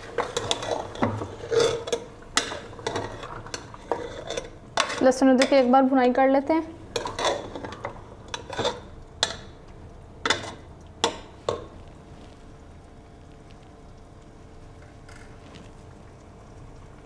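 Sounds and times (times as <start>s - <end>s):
metal spoon scraping a pot: 0.0s - 5.7s, 6.9s - 9.4s.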